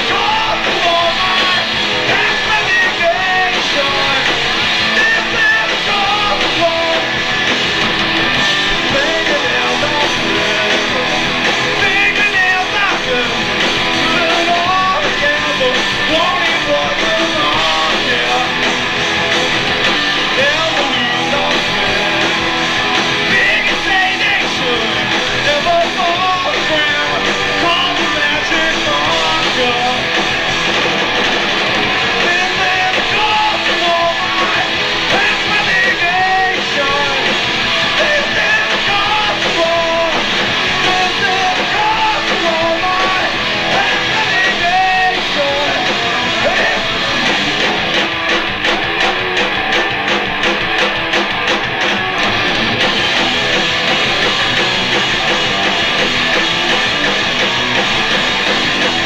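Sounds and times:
person singing: 0.0s - 7.5s, 8.3s - 18.8s, 20.2s - 30.1s, 31.9s - 47.8s
electric guitars: 0.0s - 59.0s.

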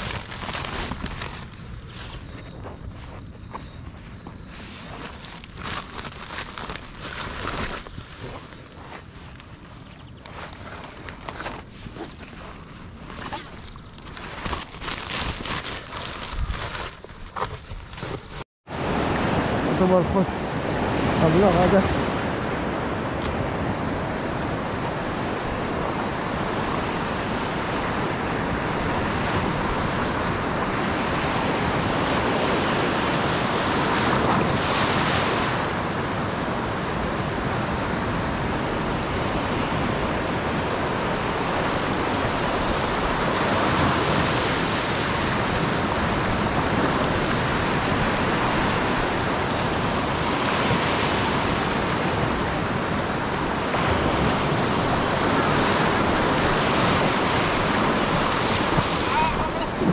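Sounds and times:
ocean surf breaking: 18.7s - 59.9s.

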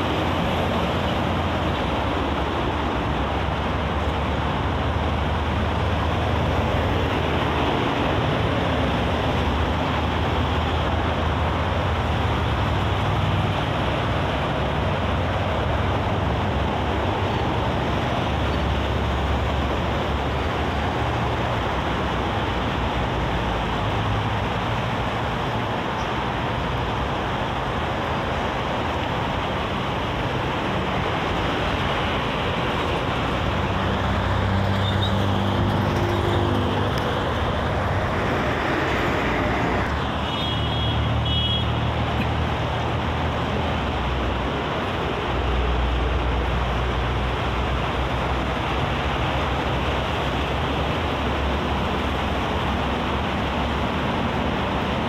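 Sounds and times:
heavy vehicle engine hum: 0.0s - 55.0s
highway traffic: 0.0s - 55.0s.

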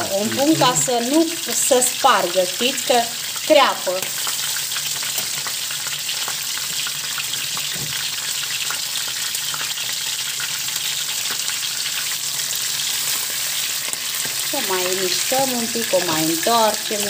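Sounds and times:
sausages sizzling in a pan: 0.0s - 17.0s
crackles and pops: 4.0s - 15.3s.

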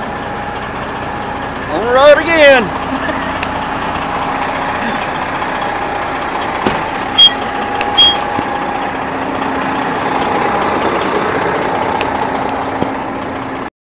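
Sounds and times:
diesel truck engine running: 0.0s - 13.7s
loud high beeps: 7.2s - 7.4s, 8.0s - 8.3s.

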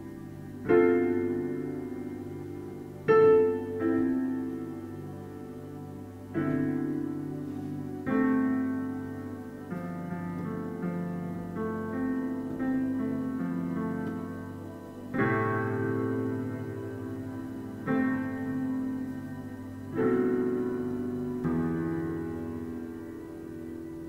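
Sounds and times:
gentle solo piano: 0.0s - 24.0s.

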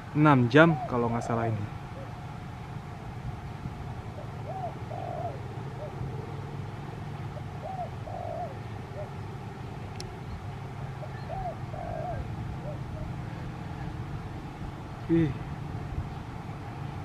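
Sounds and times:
dove cooing: 0.0s - 2.4s, 4.0s - 14.1s.

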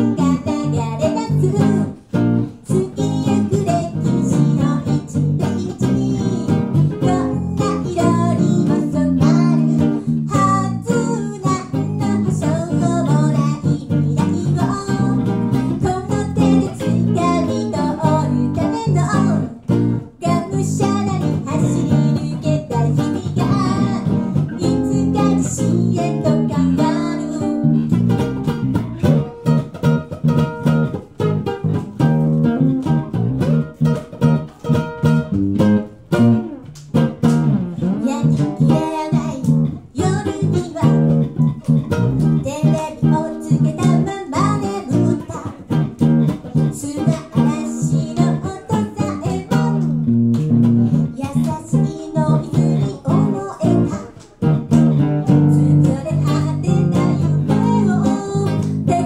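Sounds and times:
woman singing: 0.0s - 28.0s, 37.8s - 41.6s, 42.3s - 45.8s, 46.4s - 50.0s, 51.0s - 54.4s, 55.2s - 59.0s
acoustic guitar playing: 0.0s - 59.0s
plucked string instrument: 0.0s - 59.0s.

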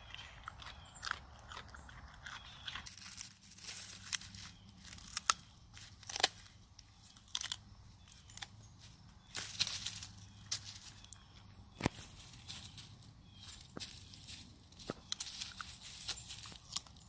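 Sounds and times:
animal chewing crisp greens: 0.0s - 6.4s.

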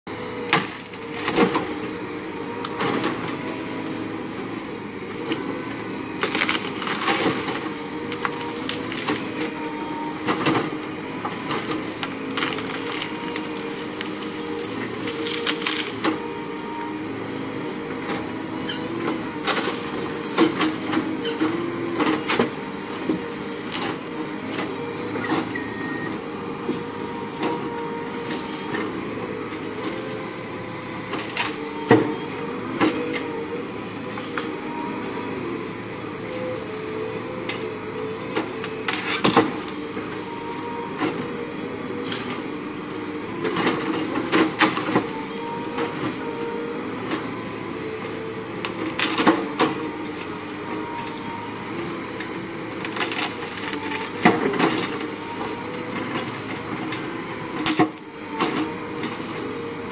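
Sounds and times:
excavator diesel engine running: 0.1s - 59.9s
tree limbs cracking and snapping: 6.2s - 9.3s, 11.6s - 16.1s, 52.7s - 54.9s.

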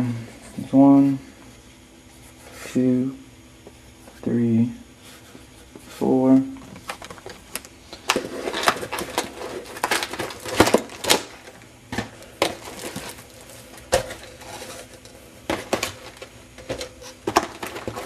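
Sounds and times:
cardboard boxes knocking and rustling: 15.5s - 18.0s.

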